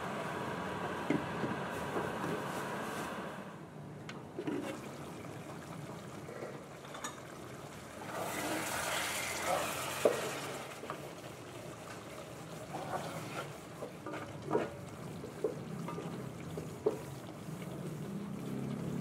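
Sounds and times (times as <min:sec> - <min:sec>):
sauce simmering with bubbling hiss: 0:00.0 - 0:19.0
spatula scraping pan: 0:08.2 - 0:10.6, 0:12.7 - 0:14.8.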